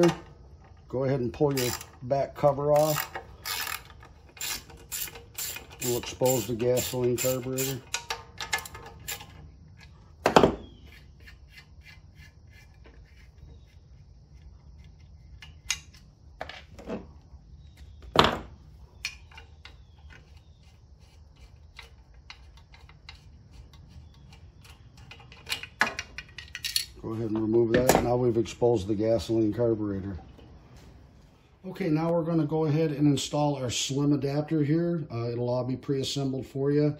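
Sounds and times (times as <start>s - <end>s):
small clicks and rattles of parts: 1.5s - 2.0s, 2.7s - 10.0s, 19.0s - 27.0s.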